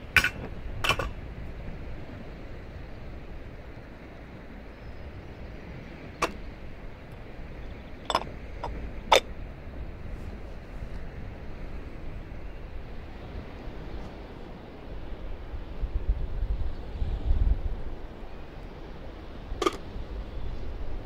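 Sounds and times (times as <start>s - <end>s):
metal clinking on metal: 8.1s - 9.2s.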